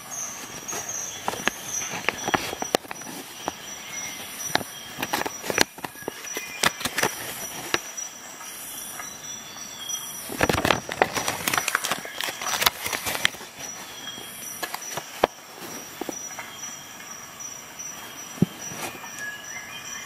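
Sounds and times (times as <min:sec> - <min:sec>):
paper rustling and crackling: 0:00.0 - 0:07.9, 0:10.2 - 0:16.2, 0:18.4 - 0:19.3.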